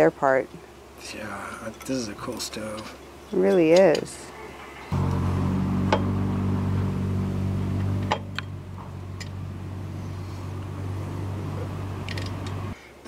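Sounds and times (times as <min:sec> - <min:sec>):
vehicle engine idling: 0:04.9 - 0:12.8.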